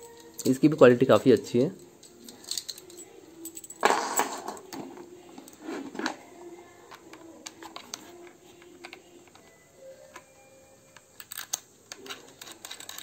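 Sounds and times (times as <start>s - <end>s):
small sharp metal clicks: 11.2s - 13.0s.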